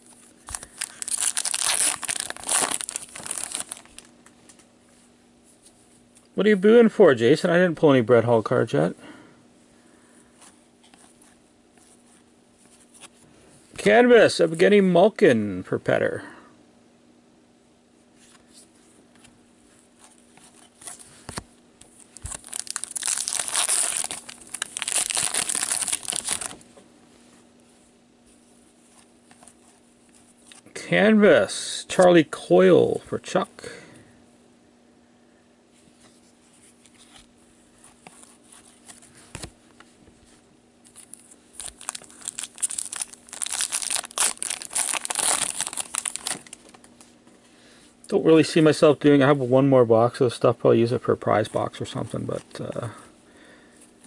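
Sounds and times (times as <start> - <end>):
foil wrapper tearing and crinkling: 0.4 - 4.1, 22.2 - 26.6, 40.9 - 46.8.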